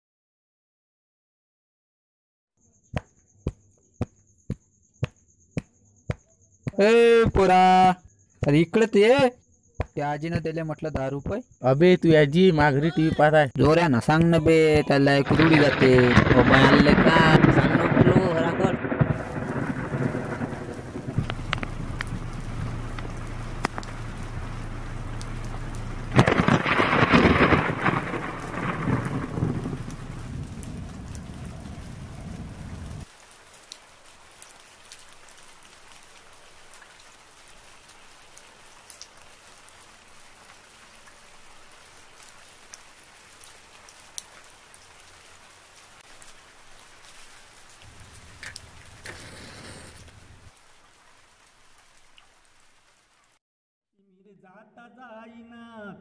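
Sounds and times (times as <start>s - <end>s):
faint scattered ticks: 2.6s - 12.2s, 47.0s - 50.5s
heavy rain: 12.5s - 53.4s
thunderclap rumbling: 14.1s - 33.1s.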